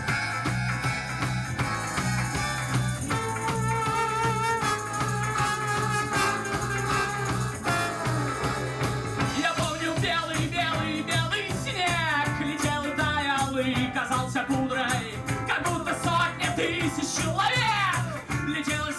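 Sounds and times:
trombone: 0.0 - 13.9
accordion: 0.0 - 17.4
acoustic guitar: 0.0 - 18.9
drums: 0.0 - 18.9
electric guitar: 0.0 - 18.9.

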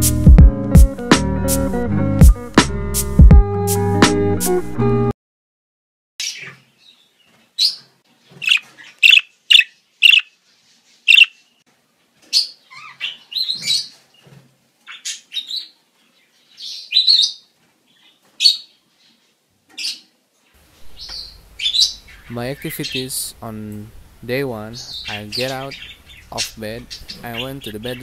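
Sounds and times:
small birds chirping: 6.2 - 11.6, 12.2 - 20.2, 20.8 - 28.0.

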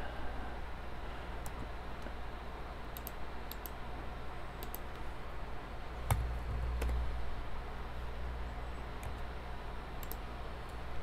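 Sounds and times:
faint low hum: 0.0 - 11.0
computer mouse clicks: 2.9 - 3.8, 4.6 - 5.0, 10.0 - 10.2.

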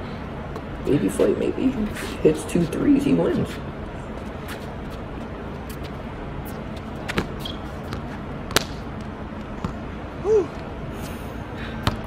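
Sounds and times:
basketball bouncing on hard court: 6.8 - 8.8, 9.6 - 9.8.

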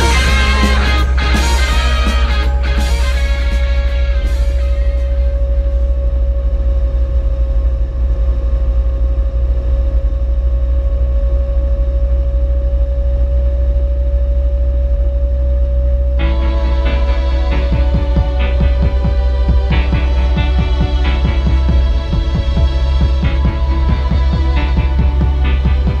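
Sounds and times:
rock music: 0.0 - 5.4, 16.2 - 26.0
faint whine: 0.0 - 26.0.

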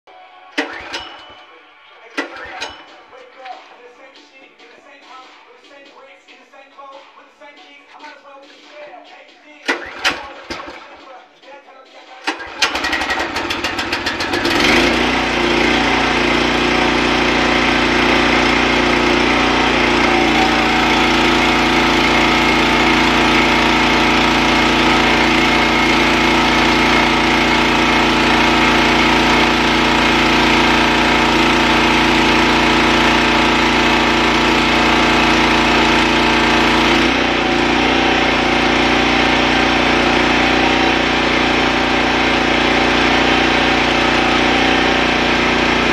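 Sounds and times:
pressure washer engine running: 9.6 - 10.9, 12.2 - 45.9.

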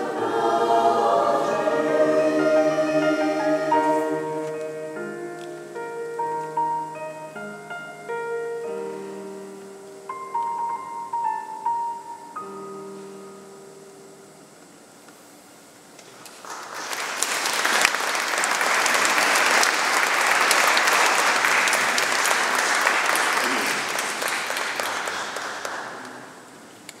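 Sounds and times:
audience applauding: 16.2 - 26.6.

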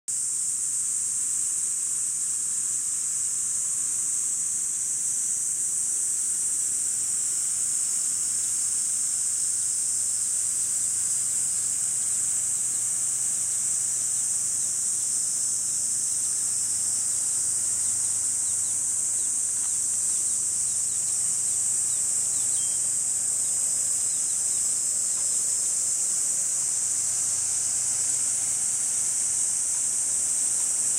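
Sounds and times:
cicadas buzzing: 0.1 - 30.9.

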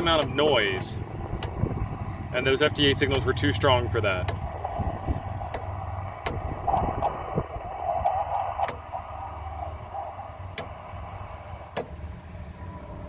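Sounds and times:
low rumble of wind and road: 0.0 - 13.0
radio band noise hiss: 0.0 - 13.0
sharp clicks: 1.2 - 9.1.

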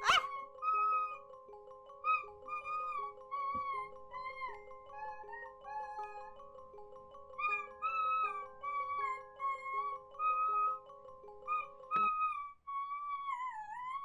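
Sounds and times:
sliding wavering melody: 0.0 - 1.3.

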